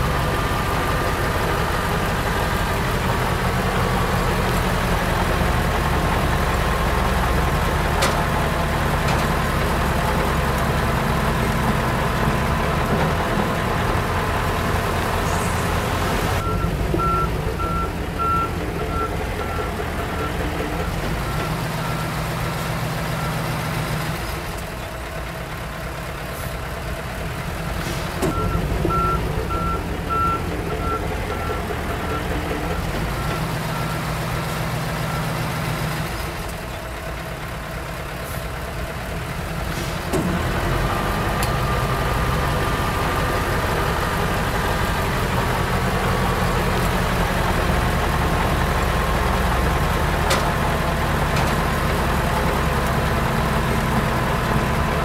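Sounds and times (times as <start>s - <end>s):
bulldozer diesel engine working: 0.0s - 55.0s
backup alarm beeping: 16.4s - 22.2s, 28.3s - 34.4s.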